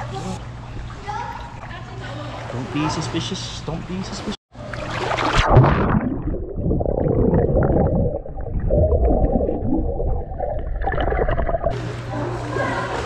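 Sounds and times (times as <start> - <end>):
muffled underwater rumbling: 4.6 - 11.8
splash into pool: 4.7 - 6.3.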